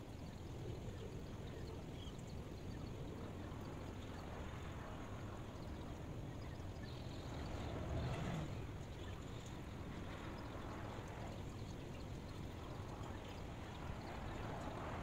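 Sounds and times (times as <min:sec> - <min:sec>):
white noise rushing: 0:07.2 - 0:08.9.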